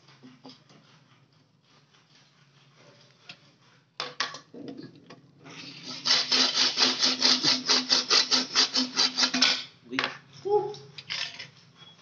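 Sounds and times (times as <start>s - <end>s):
hand tool rasping on pipe: 0.0s - 3.9s, 5.7s - 9.7s
scattered knocks and scrapes: 0.0s - 4.5s, 5.5s - 10.4s, 11.0s - 11.8s.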